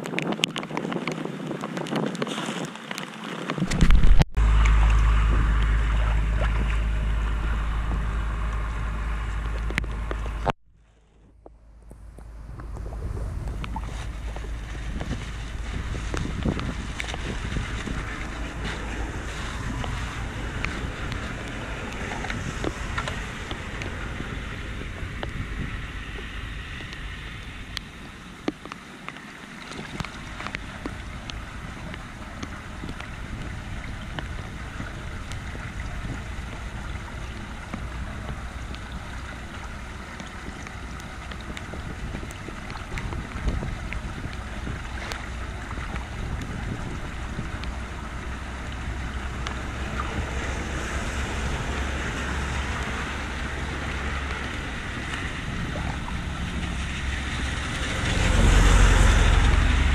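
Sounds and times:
wind on microphone: 0.0 - 10.6, 11.2 - 59.9
scraping of wet debris: 12.2 - 25.4.

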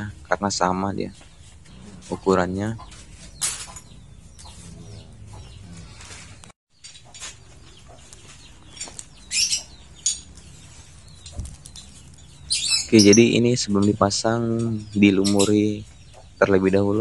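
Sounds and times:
faint bird calls: 1.3 - 6.4
metal plates clinking: 3.2 - 4.0.

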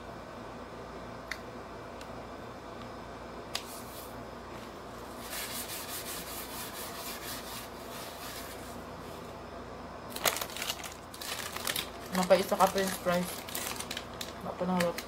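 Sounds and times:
low room hum: 0.0 - 15.0
hands rubbing together: 5.2 - 8.8.

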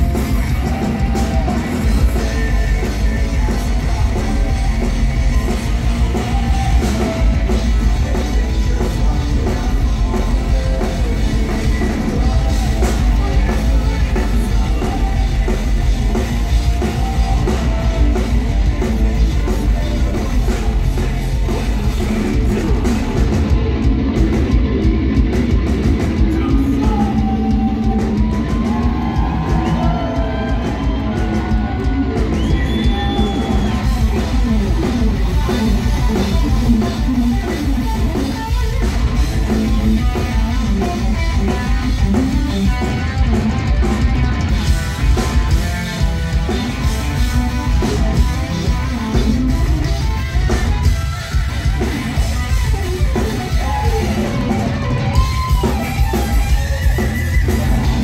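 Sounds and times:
person singing: 0.0 - 23.6, 26.2 - 38.8
heavy metal band playing: 0.0 - 58.0
lead guitar solo: 26.9 - 58.0.

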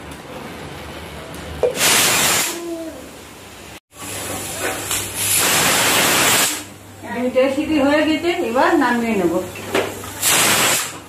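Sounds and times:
pressure cooker valve hissing steam: 1.6 - 2.6, 5.2 - 6.7, 10.2 - 11.0.

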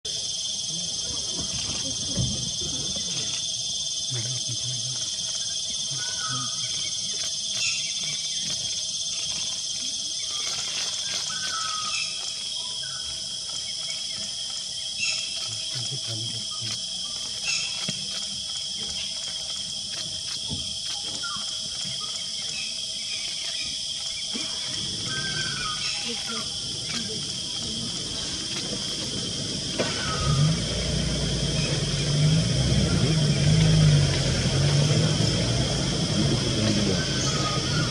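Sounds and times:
insects shrilling: 0.1 - 37.9
vehicle engine running: 26.3 - 37.9.

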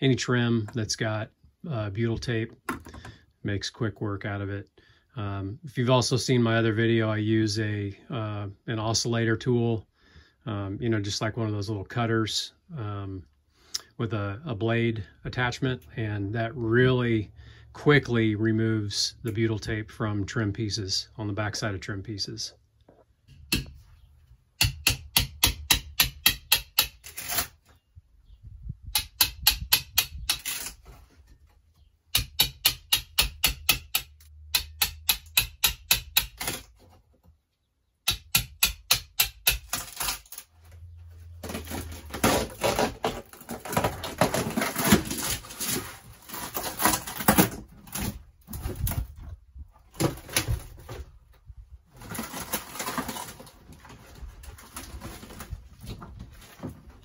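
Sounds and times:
wood cracking and tearing: 39.2 - 49.2, 49.8 - 51.2, 51.9 - 57.0.

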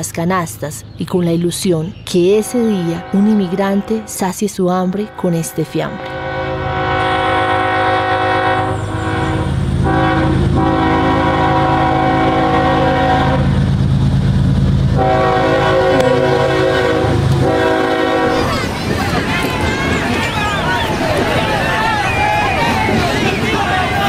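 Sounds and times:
train rumbling past: 0.0 - 24.0
train horn blasts: 2.4 - 4.2, 5.0 - 13.7, 14.9 - 18.4.

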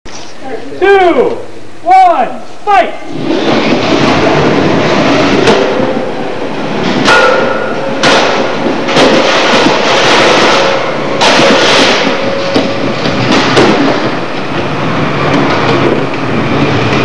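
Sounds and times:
sharp metallic hits: 6.7 - 14.5.

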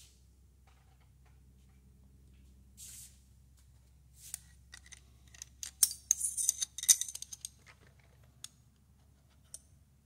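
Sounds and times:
light metallic clicks and rattles: 4.7 - 9.8.

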